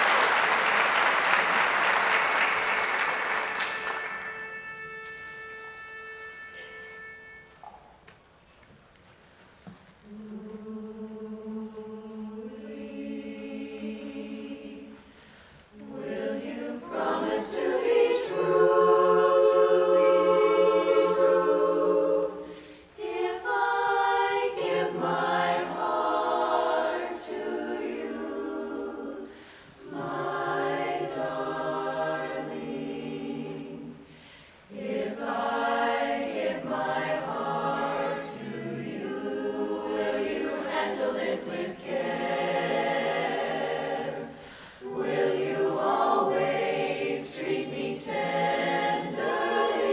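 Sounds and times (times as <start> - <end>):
women's chorus singing a cappella: 10.1 - 49.9.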